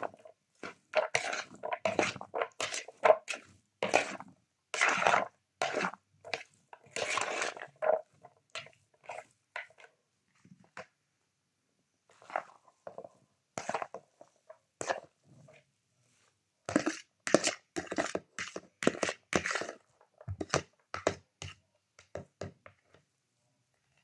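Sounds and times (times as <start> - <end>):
metal spoon scraping plastic bowl: 0.0 - 10.9, 12.1 - 15.7, 16.6 - 23.0.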